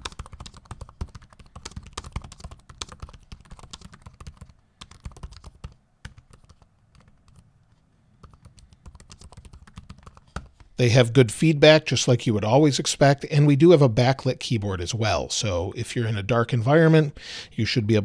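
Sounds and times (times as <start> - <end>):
laptop keyboard typing: 0.0 - 7.5, 8.2 - 10.7.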